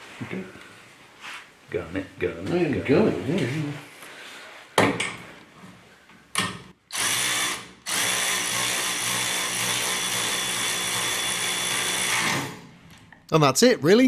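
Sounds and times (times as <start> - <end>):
cordless electric ratchet whirring: 6.9 - 12.6.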